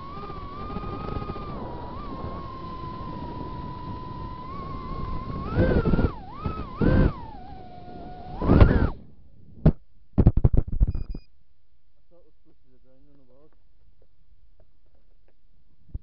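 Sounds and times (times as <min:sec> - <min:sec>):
drone propellers whining: 0:00.0 - 0:09.3.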